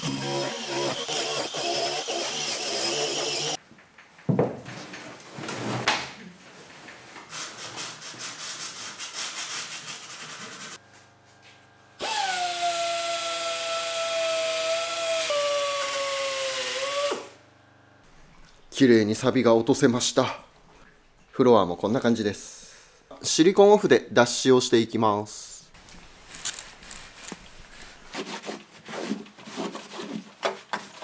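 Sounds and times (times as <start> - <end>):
die grinder whining on metal: 0.0 - 3.6, 12.0 - 17.3
grinder grinding rust off steel: 0.0 - 3.6
hand sanding: 7.3 - 10.8, 28.1 - 31.0.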